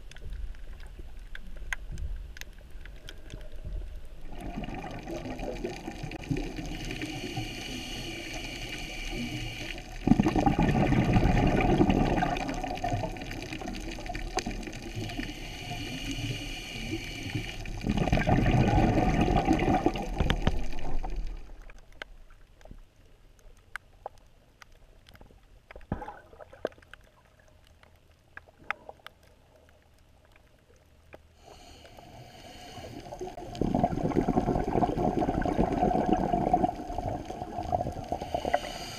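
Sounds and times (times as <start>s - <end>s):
bursts of bubbles: 4.3s - 6.7s, 10.0s - 14.5s, 17.8s - 21.6s, 25.9s - 26.7s, 33.4s - 38.2s
regulator inhalation hiss: 6.6s - 10.0s, 14.8s - 17.8s, 31.4s - 33.4s, 38.1s - 38.9s.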